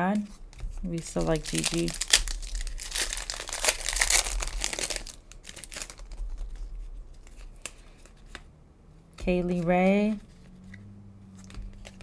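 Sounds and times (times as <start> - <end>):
cards clicking and rustling: 0.1 - 8.5, 9.1 - 12.0
wrapper tearing and crinkling: 0.9 - 8.1.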